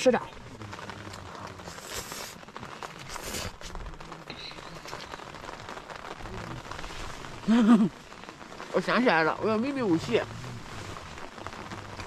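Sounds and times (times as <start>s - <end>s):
steady background hiss: 0.0s - 12.0s
person slurping and chewing noodles: 1.3s - 2.4s, 3.0s - 3.7s.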